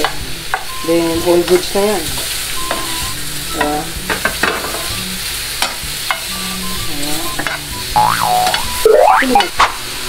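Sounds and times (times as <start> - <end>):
mushrooms sizzling in a frying pan: 0.0 - 10.0
rising and falling tone: 8.0 - 9.5.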